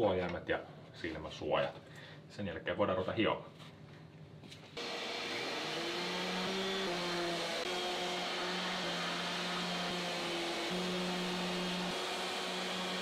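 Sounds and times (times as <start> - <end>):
orbital sander sanding wood: 4.8 - 13.0.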